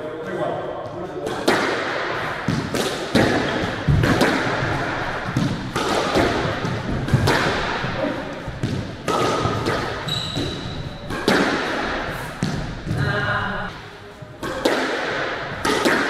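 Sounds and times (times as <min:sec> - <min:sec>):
squash ball hits: 0:01.2 - 0:13.2, 0:14.4 - 0:16.0
shoe squeak: 0:10.0 - 0:11.1.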